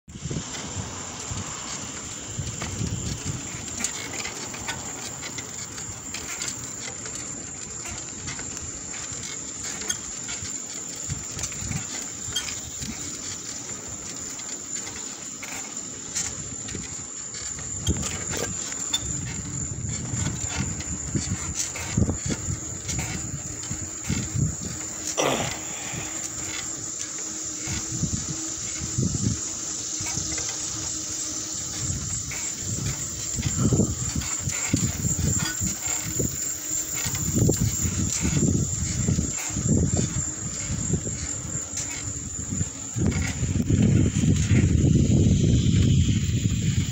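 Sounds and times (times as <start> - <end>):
crickets chirping: 0.2 - 46.9.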